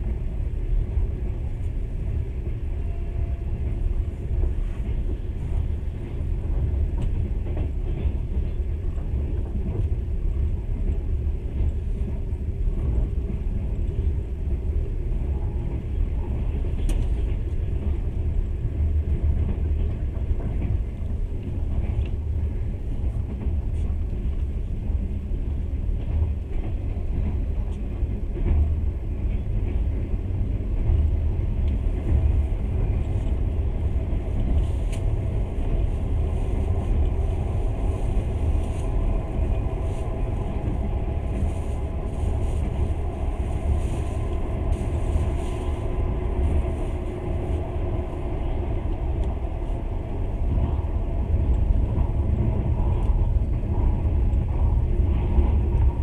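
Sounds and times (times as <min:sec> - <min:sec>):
train wheels rumbling on rails: 0:00.0 - 0:56.0
faint steady whine: 0:32.6 - 0:56.0.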